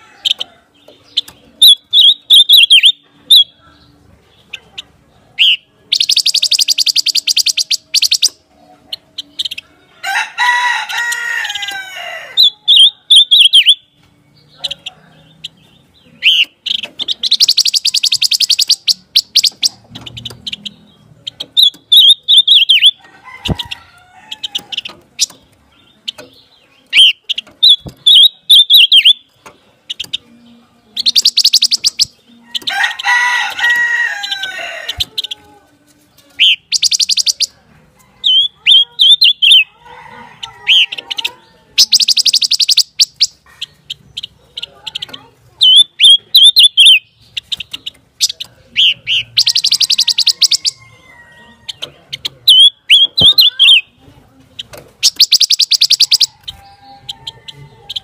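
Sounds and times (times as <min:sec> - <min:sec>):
bird whistling song: 0:01.1 - 0:03.6, 0:05.4 - 0:08.4, 0:12.4 - 0:14.0, 0:16.2 - 0:23.6, 0:26.9 - 0:29.3, 0:31.0 - 0:32.7, 0:36.4 - 0:37.6, 0:38.2 - 0:39.7, 0:40.7 - 0:44.3, 0:45.6 - 0:50.8, 0:52.5 - 0:53.9, 0:55.0 - 0:56.8
harsh drawn-out bird call: 0:05.4 - 0:08.4, 0:09.2 - 0:13.9, 0:16.2 - 0:25.4, 0:26.9 - 0:29.3, 0:38.2 - 0:51.8
fast high bird trill: 0:31.0 - 0:35.3, 0:41.8 - 0:43.4, 0:48.8 - 0:50.8, 0:55.0 - 0:56.5.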